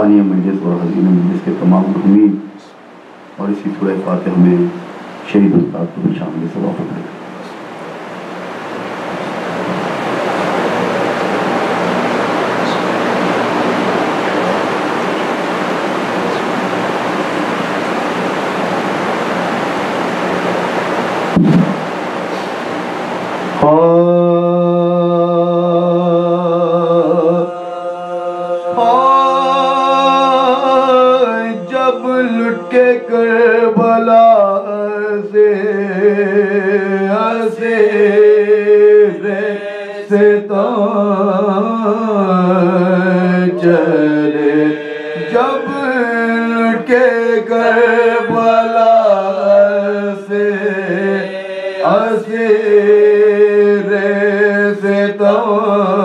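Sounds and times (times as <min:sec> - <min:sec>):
men chanting: 0:23.6 - 0:56.0.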